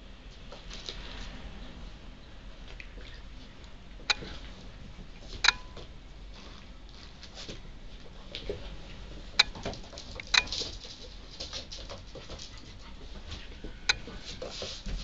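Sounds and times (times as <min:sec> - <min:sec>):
paws pattering on floor: 0:09.6 - 0:15.0.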